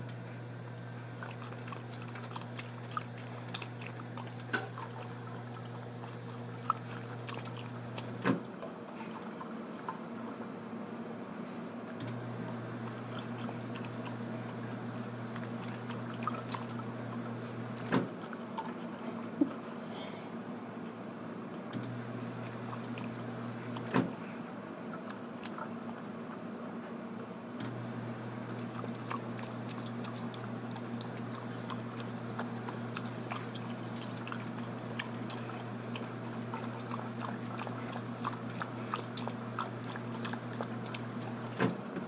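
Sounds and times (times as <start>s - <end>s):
small clicks and splashes: 0.0s - 10.5s, 12.8s - 19.0s, 21.7s - 24.2s, 27.2s - 42.0s
low steady hum: 0.0s - 42.0s
water running and dripping: 27.7s - 42.0s.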